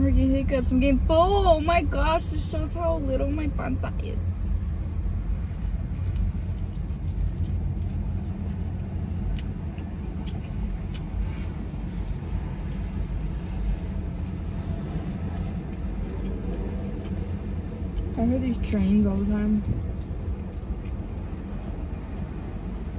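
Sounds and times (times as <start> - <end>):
passing train rumble: 0.0 - 22.9
chewing clicks and smacks: 5.4 - 11.2, 13.1 - 18.2, 19.6 - 22.9.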